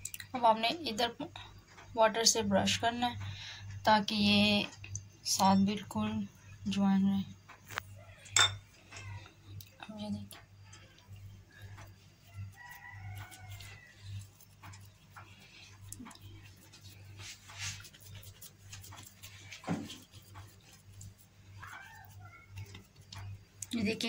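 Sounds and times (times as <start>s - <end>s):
low electrical hum: 0.0s - 24.0s
dough handled on baking mat: 11.3s - 24.0s.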